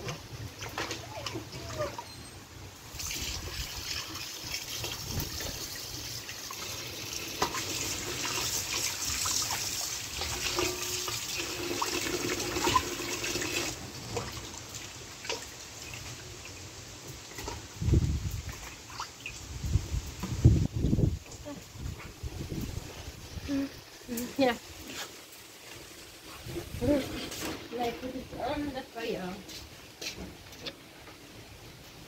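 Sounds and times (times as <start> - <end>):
hands rinsing meat in bowl: 3.0 - 16.1.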